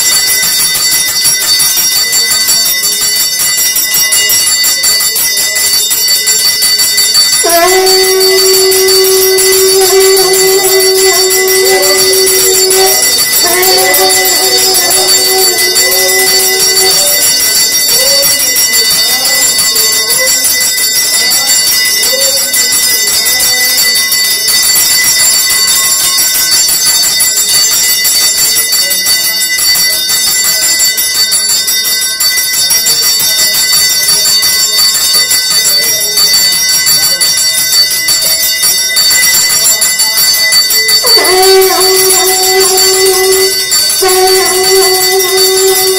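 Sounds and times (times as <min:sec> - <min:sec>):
wavering melodic tone: 0:00.0 - 0:24.1, 0:39.5 - 0:45.9
bells ringing: 0:00.0 - 0:45.9.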